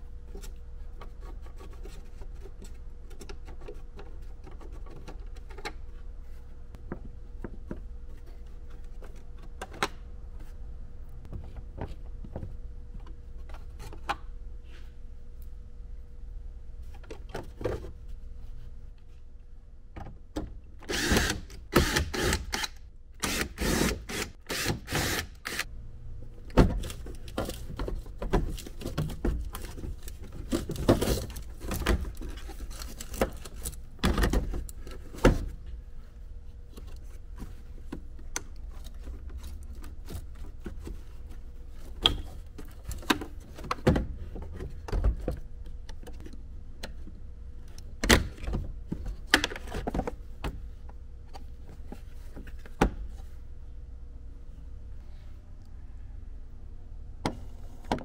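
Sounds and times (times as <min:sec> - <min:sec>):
faint steady hum: 0:00.0 - 0:58.0.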